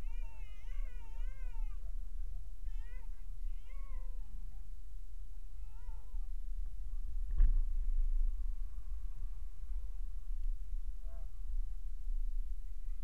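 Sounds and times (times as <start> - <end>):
high wavering cat-like cry: 0.0 - 1.8, 2.7 - 4.3.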